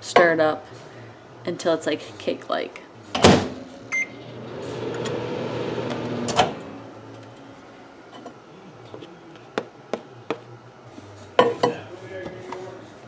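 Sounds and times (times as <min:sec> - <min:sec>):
microwave oven humming: 0:00.0 - 0:11.9
keypad beep: 0:03.9 - 0:04.2.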